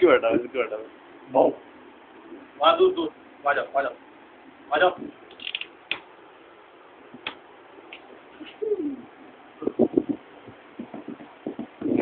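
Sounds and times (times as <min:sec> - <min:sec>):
pigeon cooing: 0:08.4 - 0:09.8.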